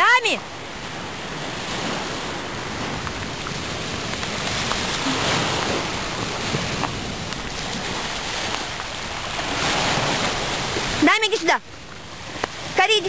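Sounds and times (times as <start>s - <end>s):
waves washing against rocks: 0.1s - 13.0s
wind on microphone: 0.8s - 11.0s.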